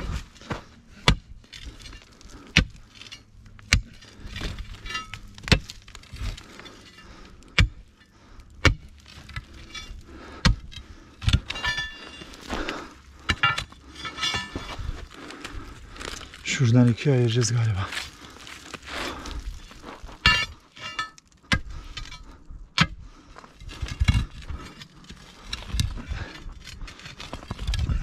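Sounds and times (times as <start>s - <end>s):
stones rattling and scraping: 0.0s - 28.0s
steel bar striking rock: 4.8s - 5.8s, 8.6s - 12.3s, 13.3s - 14.8s, 20.2s - 22.2s.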